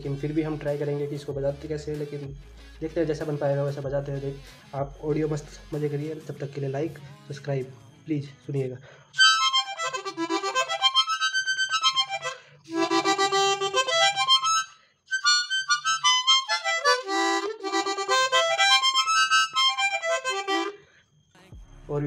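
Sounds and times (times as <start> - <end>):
harmonica playing quick runs: 9.2 - 20.8.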